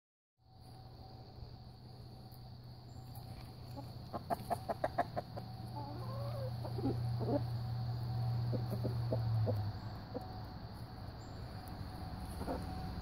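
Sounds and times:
steady low hum: 0.4s - 13.0s
chickens clucking: 3.1s - 10.8s, 12.2s - 13.0s.

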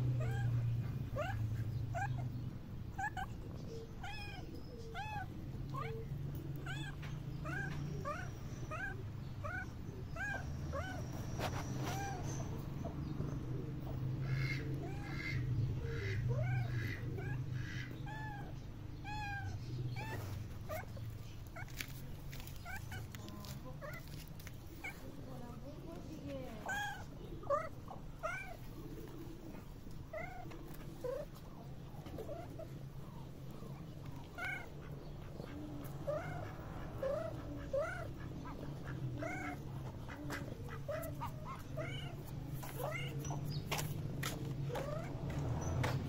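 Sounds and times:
cat meowing: 4.0s - 11.0s, 18.0s - 20.9s, 40.8s - 43.4s.

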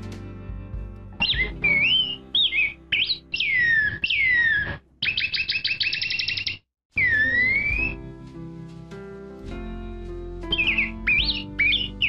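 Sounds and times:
bird singing whistled phrases: 1.2s - 8.0s, 10.5s - 12.0s.

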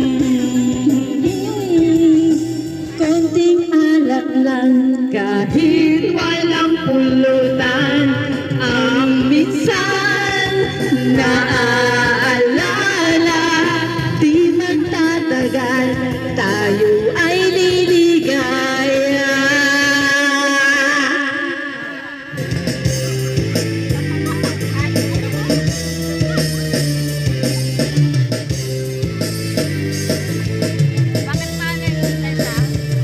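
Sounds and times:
woman singing karaoke: 0.0s - 22.6s, 31.3s - 33.0s
karaoke backing track: 0.0s - 33.0s.

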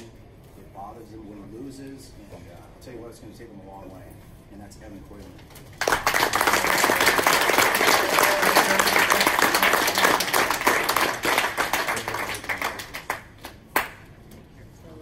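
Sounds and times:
audience clapping: 5.8s - 14.1s.

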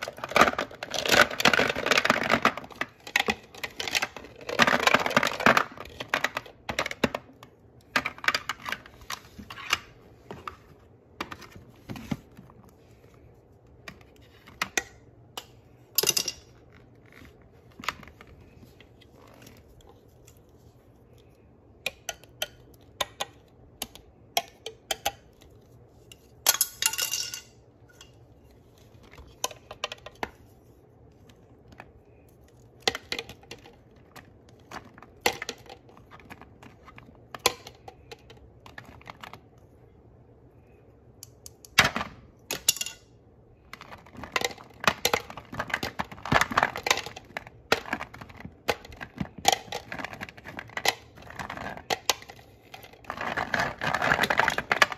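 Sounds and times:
plastic toy fruits clattering: 0.0s - 12.5s, 43.6s - 54.9s.

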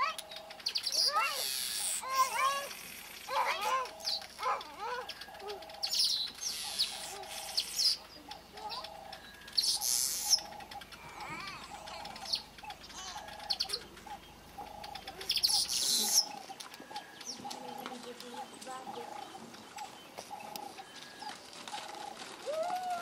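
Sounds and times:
low bird call: 0.0s - 23.0s
weaver birds buzzy chattering song: 0.0s - 23.0s.

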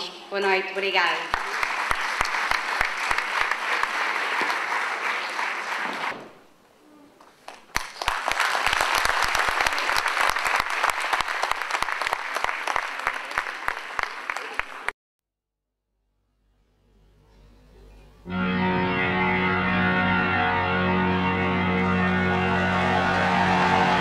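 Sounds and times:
audience applause: 1.3s - 6.2s, 7.4s - 14.9s, 21.6s - 24.0s.

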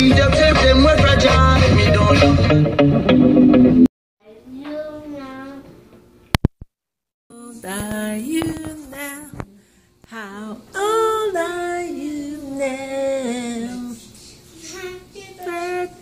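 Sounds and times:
woman and child singing: 7.3s - 16.0s.

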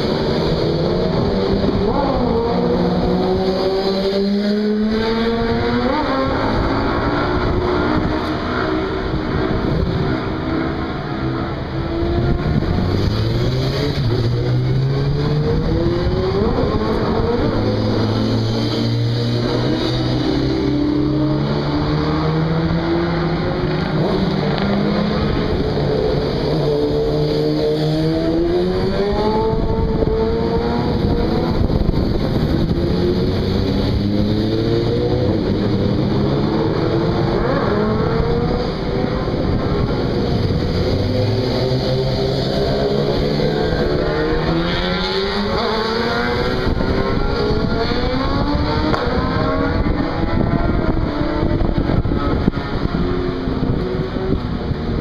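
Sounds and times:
motorcycles revving past: 11.9s - 55.0s.

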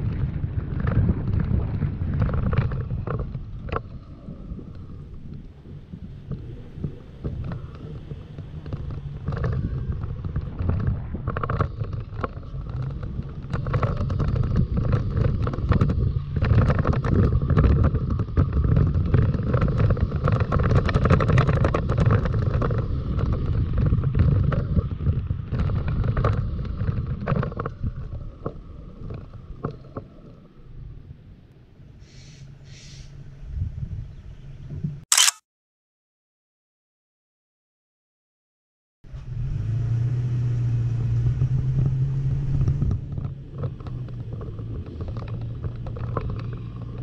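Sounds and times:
tyres rumbling on dirt road: 0.0s - 30.2s, 39.1s - 47.0s
gravel clicks and rattles: 0.0s - 30.5s, 42.6s - 47.0s
wind buffeting microphone: 0.0s - 31.5s, 33.3s - 35.0s.

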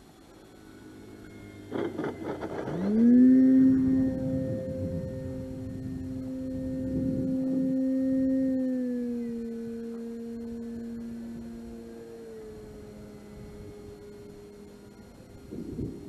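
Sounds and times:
model plane motor whine: 0.0s - 16.0s.

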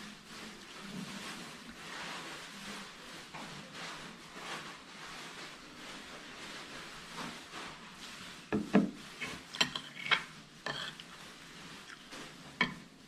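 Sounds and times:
fork scraping a plate: 9.2s - 11.2s.

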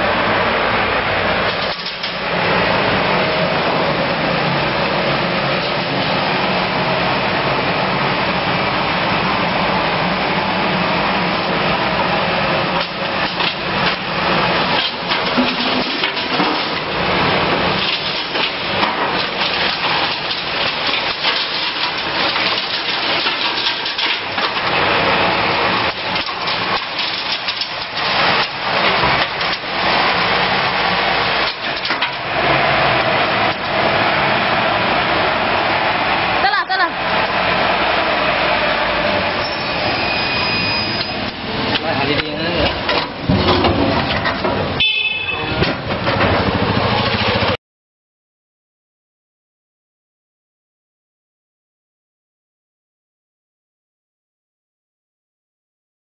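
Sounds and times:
litter clattering in sweeper: 1.1s - 47.6s.

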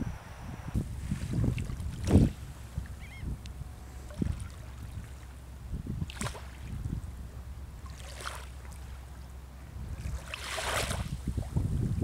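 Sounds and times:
wind on microphone: 0.0s - 7.9s, 9.6s - 12.0s
water lapping: 3.8s - 11.6s
water splashing: 6.0s - 6.8s, 7.8s - 9.0s, 9.9s - 11.6s.

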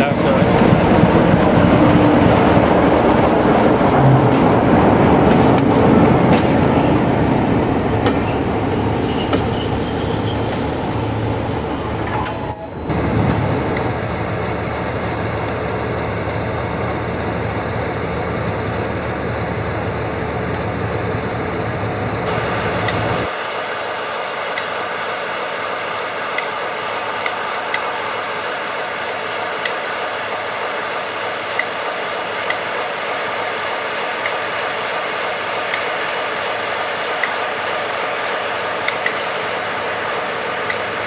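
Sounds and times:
train wheels on rails: 0.0s - 23.4s, 25.8s - 41.0s
diesel locomotive engine running: 0.0s - 41.0s
high wheel squeal: 8.2s - 12.9s.

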